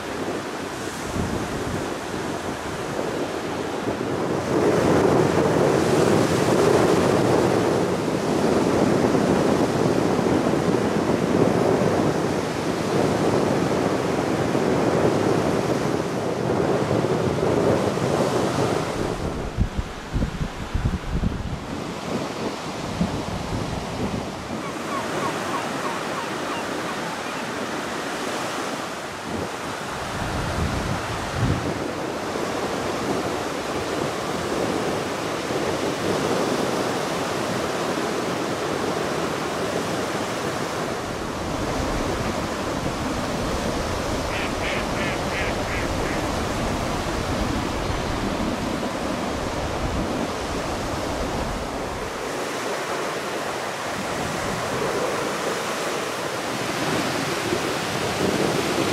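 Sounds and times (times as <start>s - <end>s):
surf washing onto beach: 0.0s - 58.9s
wind on microphone: 0.0s - 58.9s
bird quick high calls: 24.6s - 27.5s, 44.3s - 46.2s.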